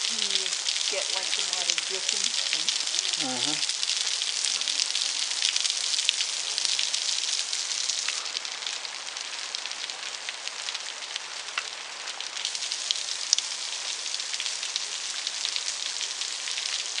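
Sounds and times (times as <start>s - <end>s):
water dripping off cliff: 0.0s - 17.0s.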